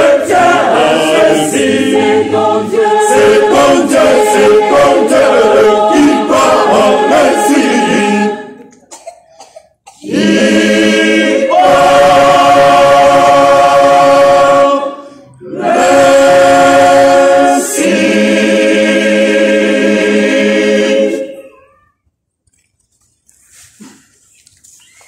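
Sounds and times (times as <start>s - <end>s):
choir singing a cappella: 0.0s - 8.7s, 10.0s - 21.5s.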